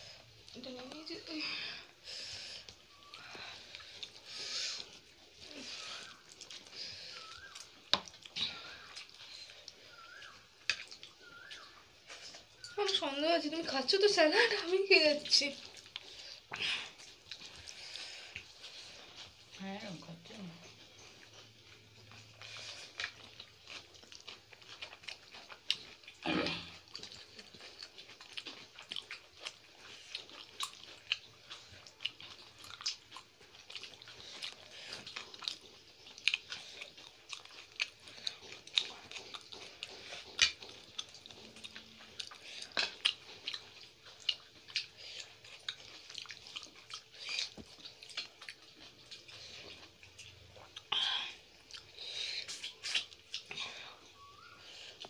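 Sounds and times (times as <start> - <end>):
people chewing: 0.0 - 55.0
wet mouth clicks and smacks: 6.0 - 12.8, 26.9 - 53.6.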